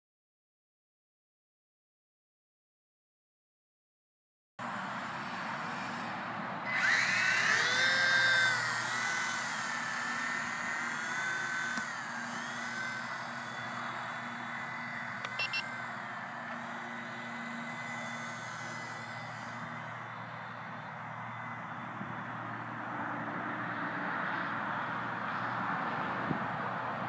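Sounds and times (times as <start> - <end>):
rc helicopter rotor whine: 4.6 - 27.0
short high beeps: 15.4 - 15.6.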